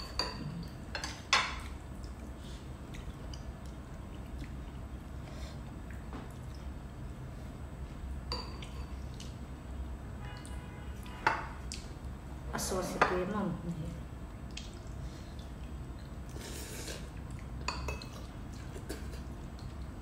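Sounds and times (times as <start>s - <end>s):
utensils clinking on ceramic bowls: 8.3s - 9.0s
soft sipping: 14.5s - 19.7s.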